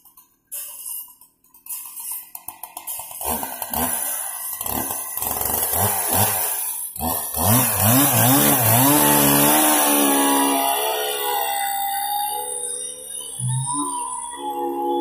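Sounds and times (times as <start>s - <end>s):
chainsaw revving: 2.6s - 11.9s.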